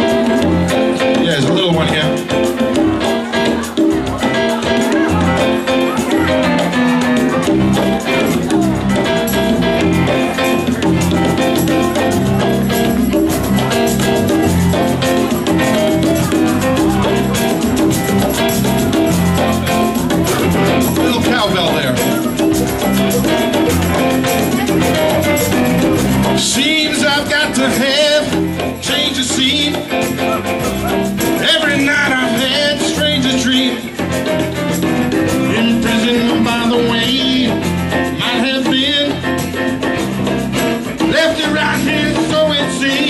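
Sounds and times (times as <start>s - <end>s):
congas: 0.0s - 43.0s
live rock band playing: 0.0s - 43.0s
man singing lead: 19.3s - 34.3s, 35.3s - 39.6s, 41.0s - 43.0s.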